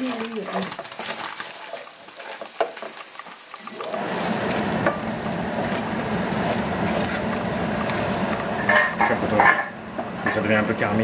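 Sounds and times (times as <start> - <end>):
meat sizzling in a frying pan: 0.0 - 11.0
wooden spoon scraping: 0.3 - 3.0, 6.4 - 10.4.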